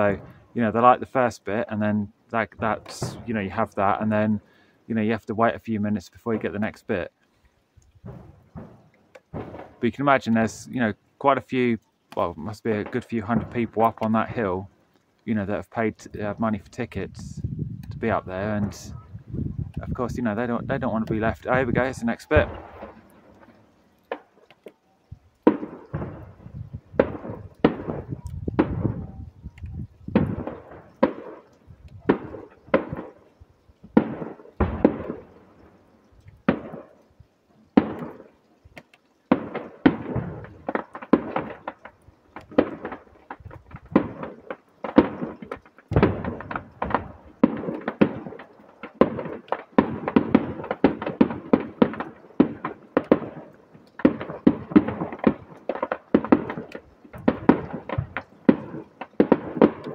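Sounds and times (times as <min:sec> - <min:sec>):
distant firework bangs echoing: 0:00.0 - 0:01.0, 0:02.5 - 0:04.6, 0:08.0 - 0:10.7, 0:12.2 - 0:14.6, 0:21.0 - 0:24.8, 0:25.4 - 0:37.1, 0:37.7 - 0:59.9.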